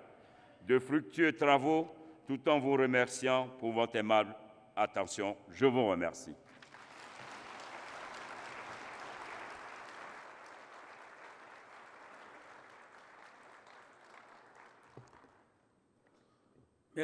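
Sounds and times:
audience applauding: 0:06.5 - 0:15.4.

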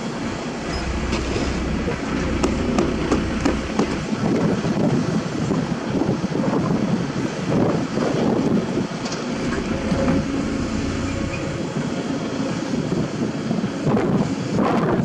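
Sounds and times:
hydraulics: 0:00.0 - 0:05.6, 0:08.4 - 0:13.8
excavator diesel engine running: 0:00.0 - 0:05.9, 0:08.3 - 0:13.9.

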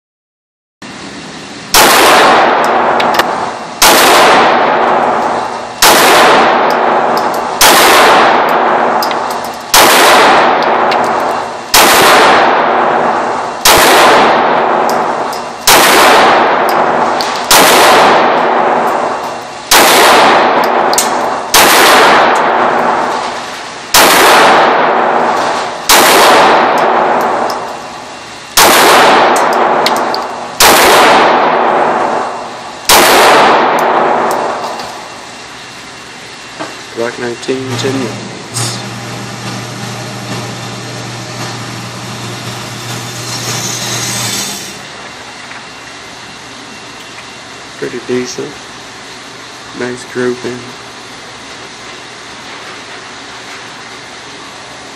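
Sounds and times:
pistol shots echoing indoors: 0:01.7 - 0:27.9, 0:28.6 - 0:35.1.

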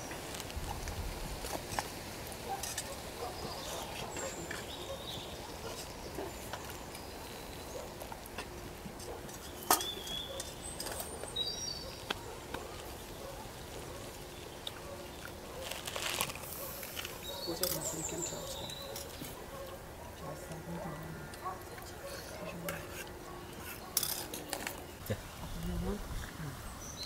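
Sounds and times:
spoons clinking against bowls: 0:09.2 - 0:11.2
bird chirps: 0:09.4 - 0:12.1.

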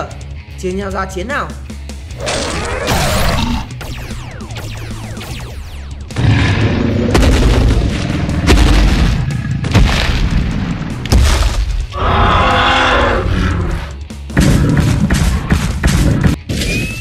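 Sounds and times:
background music: 0:00.0 - 0:17.0
deep booms and heavy impacts: 0:02.3 - 0:12.5, 0:14.0 - 0:16.5.

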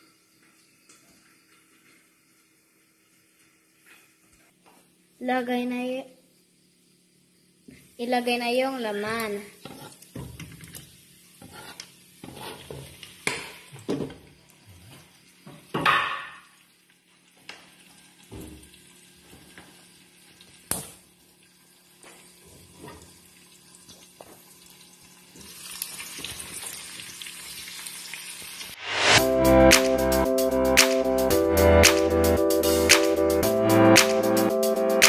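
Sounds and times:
meat sizzling in a pan: 0:16.4 - 0:29.2.

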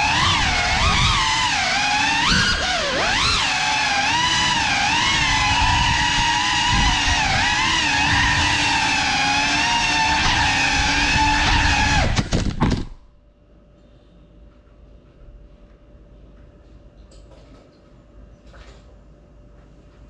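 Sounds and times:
drone motors whining: 0:00.0 - 0:12.8.

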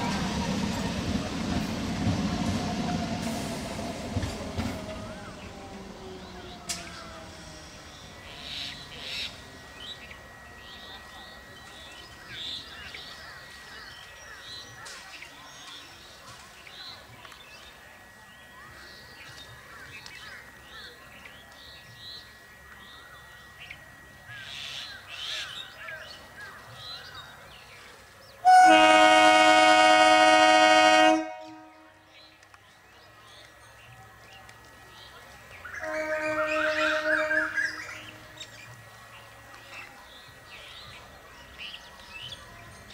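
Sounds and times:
thin high tone: 0:07.0 - 0:13.9
train horn blast: 0:28.4 - 0:32.2, 0:35.7 - 0:38.4.

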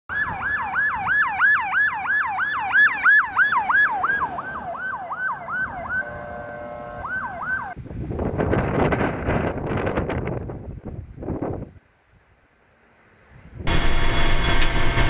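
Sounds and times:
fire truck siren yelping: 0:00.1 - 0:07.8, 0:13.7 - 0:15.0.

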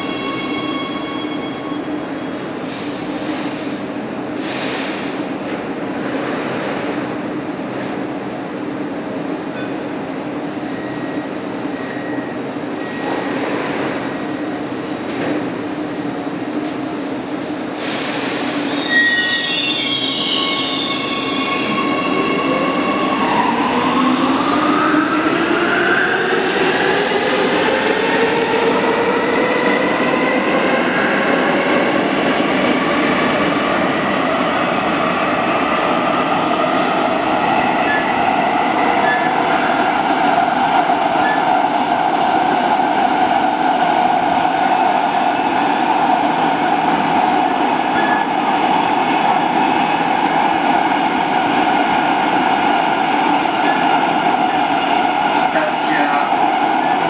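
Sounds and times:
train wheels on rail: 0:00.0 - 0:57.0
wheel squeal: 0:18.6 - 0:21.4.

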